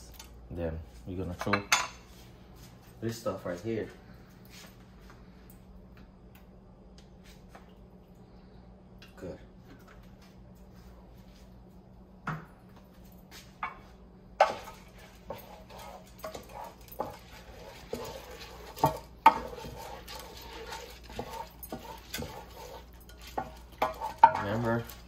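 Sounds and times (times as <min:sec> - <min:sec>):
spoon scraping rice in pan: 0:14.4 - 0:25.0.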